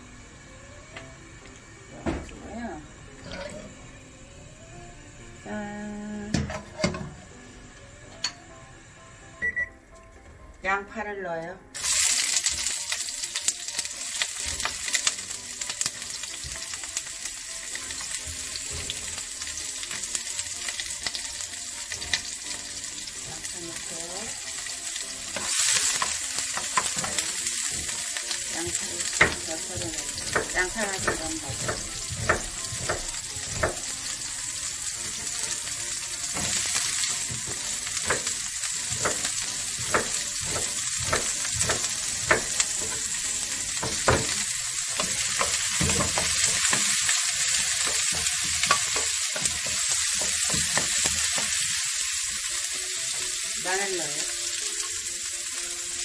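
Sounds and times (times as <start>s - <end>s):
onions sizzling in hot oil: 11.7s - 56.0s
wooden spatula knocking on pan: 28.7s - 33.9s, 37.2s - 43.1s, 43.8s - 51.6s.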